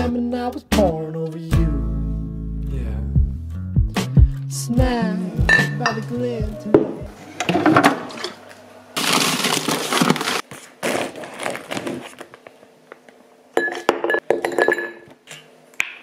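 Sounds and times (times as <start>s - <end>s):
plastic bag rustling: 9.0s - 12.7s.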